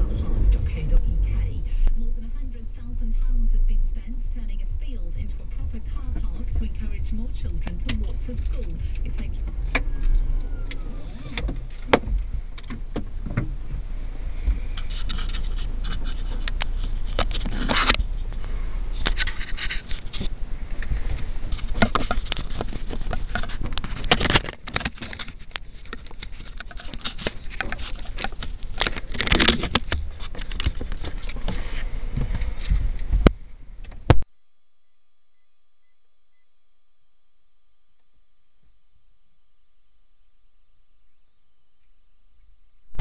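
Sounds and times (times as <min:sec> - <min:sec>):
camcorder handling noise: 0:21.5 - 0:31.5.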